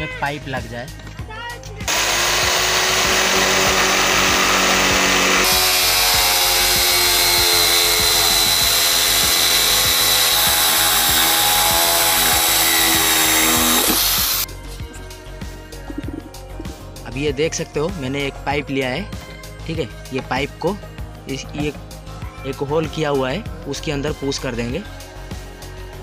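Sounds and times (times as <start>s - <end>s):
electric drill cutting plastic: 1.9s - 14.5s.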